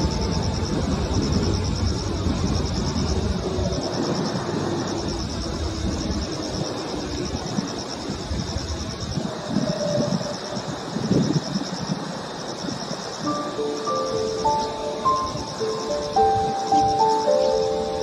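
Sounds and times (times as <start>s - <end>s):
low uneven rumble: 0.0s - 6.3s
insects chirping: 0.0s - 18.0s.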